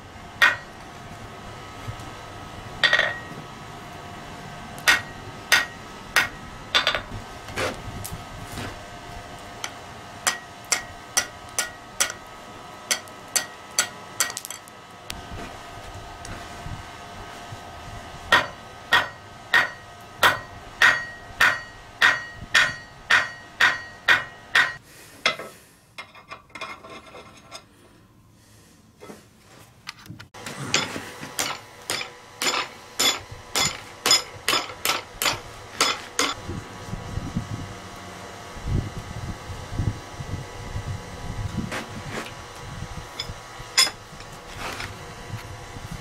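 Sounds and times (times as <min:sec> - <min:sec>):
hammer striking metal on anvil: 0:00.4 - 0:00.8, 0:02.8 - 0:03.4, 0:04.8 - 0:07.1, 0:09.6 - 0:12.3, 0:12.9 - 0:14.7, 0:18.3 - 0:26.1, 0:30.7 - 0:36.4.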